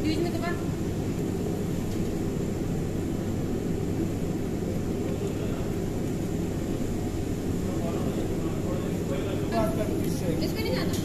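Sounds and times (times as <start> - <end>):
kitchen background roar: 0.0 - 11.0.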